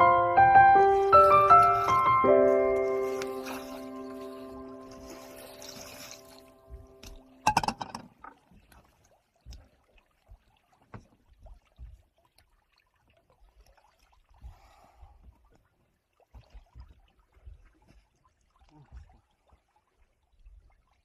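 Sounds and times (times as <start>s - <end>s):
water splashing on wooden deck: 0.6s - 21.0s.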